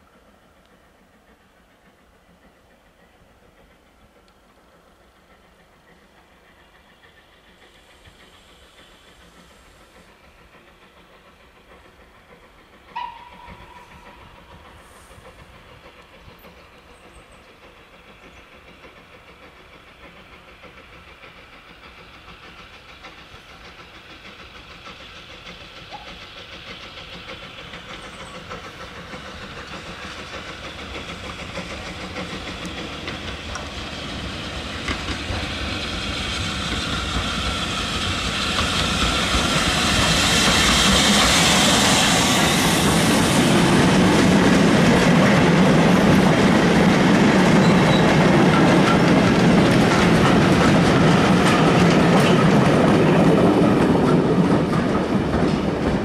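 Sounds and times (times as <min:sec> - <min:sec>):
steam locomotive running: 0:00.0 - 0:56.0
train whistle: 0:12.9 - 0:15.1.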